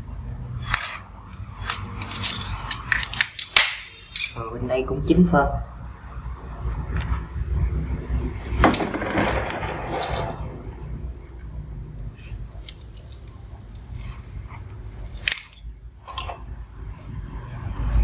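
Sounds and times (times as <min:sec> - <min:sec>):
steel tools clinking and scraping: 0:00.6 - 0:04.5, 0:08.4 - 0:10.9, 0:12.2 - 0:16.5.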